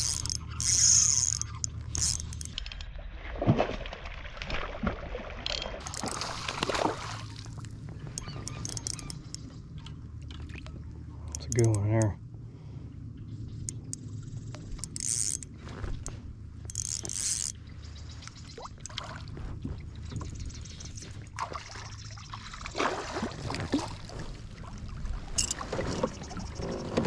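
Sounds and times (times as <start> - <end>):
water splashing around kayak: 2.9 - 8.6, 15.5 - 27.0
steady low rumble: 5.8 - 27.0
gear knocking and rustling: 14.6 - 17.6.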